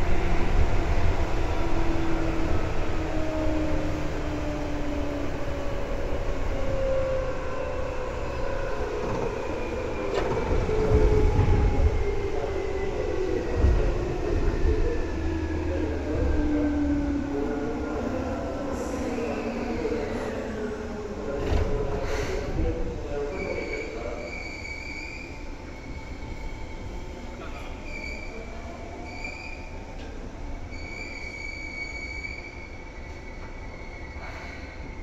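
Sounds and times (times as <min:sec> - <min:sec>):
train rumble: 0:00.0 - 0:24.5.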